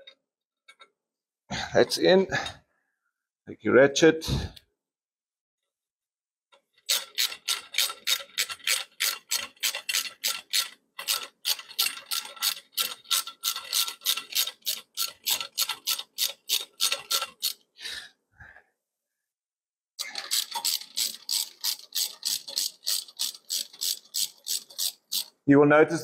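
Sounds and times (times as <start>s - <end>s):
hand ratchet clicking: 6.8s - 17.6s, 20.0s - 25.4s.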